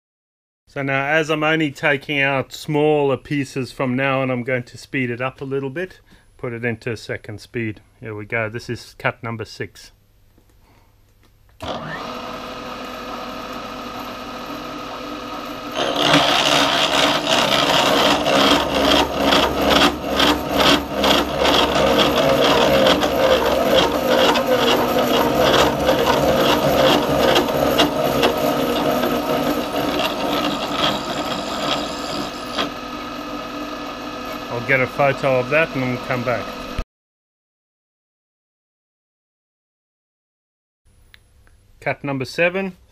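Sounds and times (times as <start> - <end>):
milling machine running: 11.6 - 36.8
milling cutter chattering on metal: 14.4 - 36.8.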